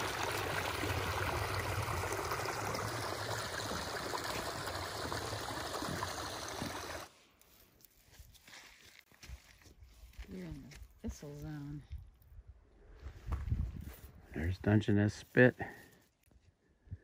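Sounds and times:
stream trickling: 0.0s - 7.1s.

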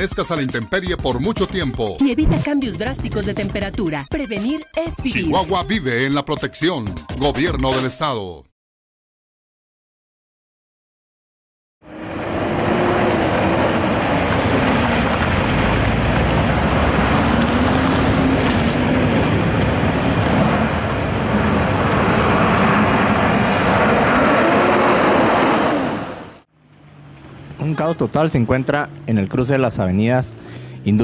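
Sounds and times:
road noise rush: 11.8s - 31.0s
vehicle engines passing: 11.8s - 31.0s.

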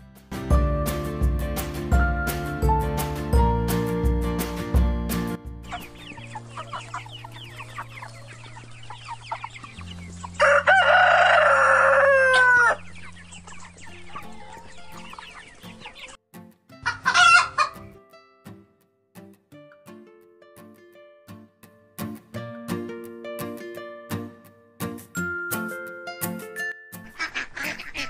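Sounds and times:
chickens clucking: 5.6s - 16.2s, 16.8s - 18.0s, 27.0s - 28.0s
rooster crowing: 10.4s - 12.9s.

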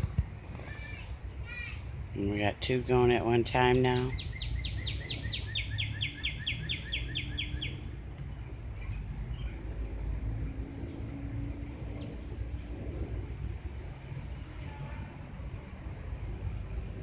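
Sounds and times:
steady low rumble: 0.0s - 17.0s
bird chirping rapidly: 3.6s - 8.0s.

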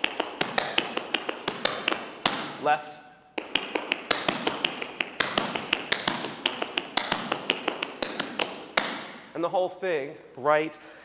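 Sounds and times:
tap shoes striking floor: 0.0s - 2.5s, 3.4s - 9.2s.

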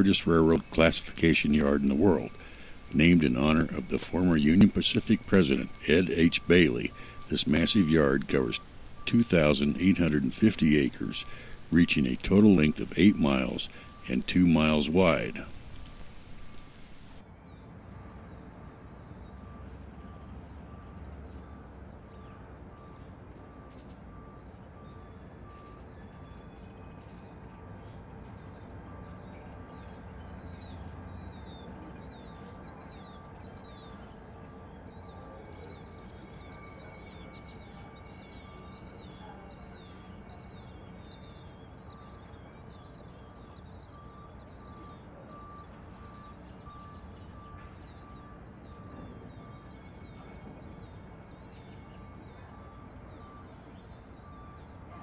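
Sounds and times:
faint beep: 0.0s - 17.2s, 43.2s - 55.0s
high quick chirps: 0.0s - 17.2s.

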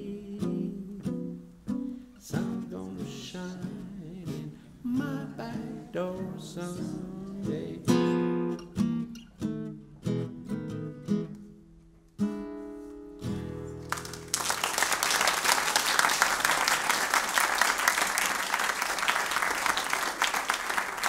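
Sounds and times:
classical guitar playing: 0.0s - 14.3s
audience applause: 13.8s - 21.0s.

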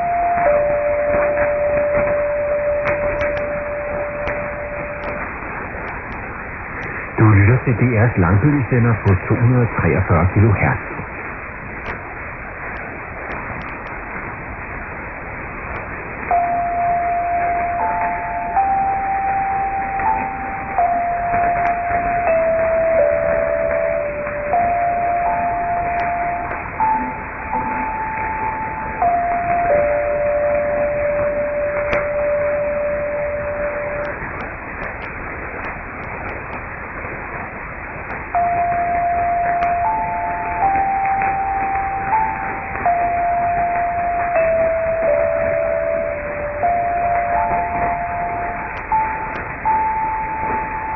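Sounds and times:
faint crackle clicks: 0.0s - 7.1s, 10.9s - 14.4s, 15.6s - 50.9s
radio static hiss: 0.0s - 50.9s.

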